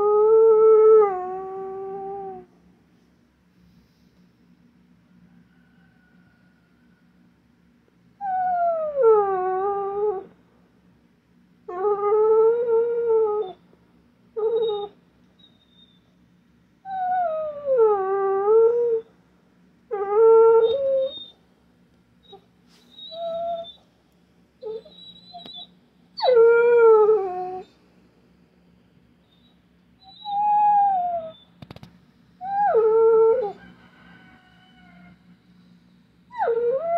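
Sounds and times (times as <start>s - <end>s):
dog whining and howling: 0.0s - 2.6s, 8.2s - 10.4s, 11.7s - 13.7s, 14.4s - 16.2s, 16.8s - 19.2s, 19.9s - 21.4s, 22.2s - 23.9s, 24.6s - 27.8s, 29.2s - 31.6s, 32.4s - 35.3s, 36.3s - 36.9s.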